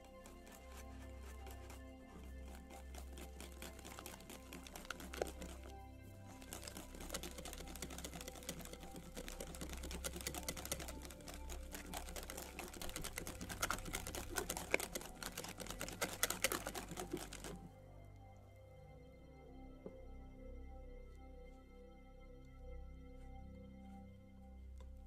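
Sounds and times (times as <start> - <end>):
whisk clicking against glass bowl: 0.0 - 5.7, 6.3 - 17.6.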